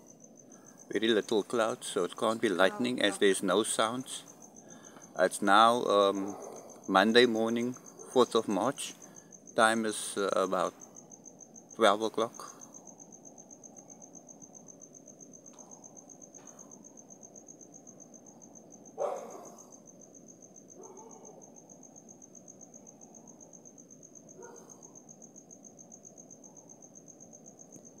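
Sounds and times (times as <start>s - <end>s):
cricket trilling: 0.0s - 28.0s.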